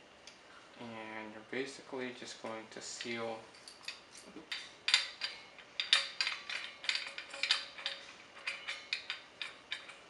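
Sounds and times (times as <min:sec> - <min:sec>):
metal fittings clicking and scraping: 0:03.0 - 0:10.0.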